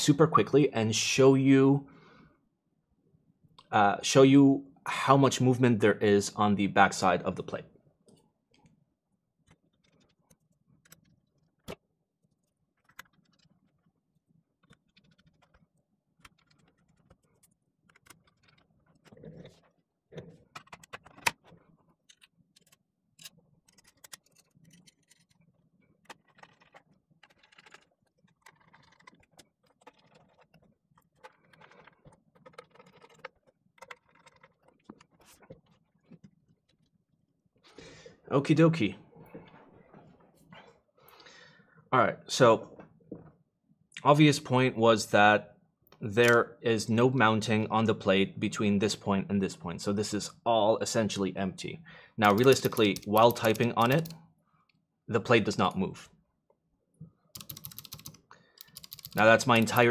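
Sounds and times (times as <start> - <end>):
small metal parts clicking: 52.2 - 54.2, 57.4 - 59.9.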